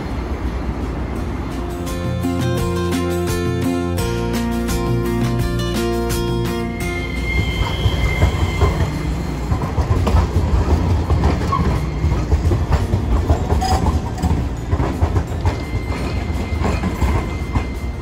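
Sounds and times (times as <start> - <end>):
tram low rumble: 0.0 - 18.0
faint wheel squeal: 6.8 - 9.4, 11.4 - 12.6
wheels clattering over rail joints: 7.6 - 18.0.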